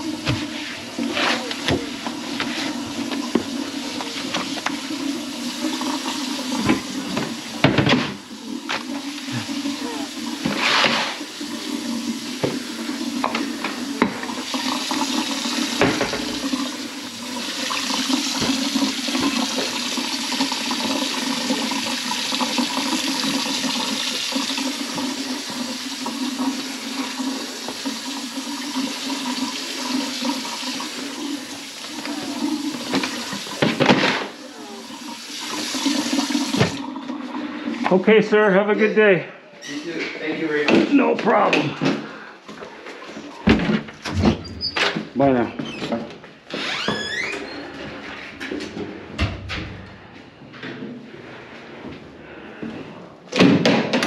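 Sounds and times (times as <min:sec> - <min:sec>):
water running into sink drain: 0:00.0 - 0:38.9.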